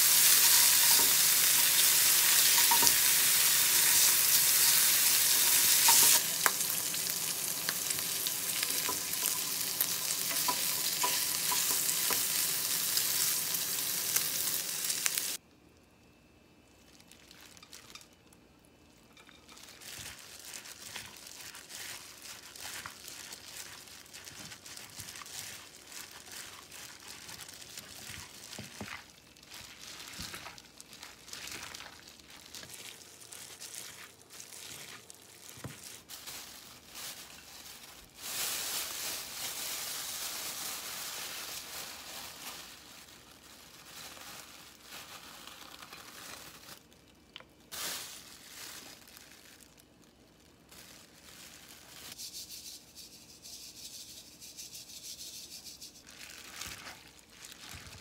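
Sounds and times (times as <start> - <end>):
plastic glove crinkling: 0.0 - 15.4, 16.7 - 18.4, 19.0 - 58.0
noodles squishing: 19.5 - 52.2, 55.9 - 58.0.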